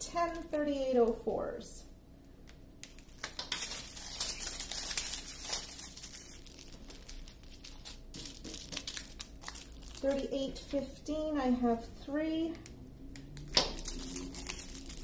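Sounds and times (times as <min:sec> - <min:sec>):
small plastic bags crinkling: 0:02.8 - 0:10.4, 0:13.2 - 0:15.0.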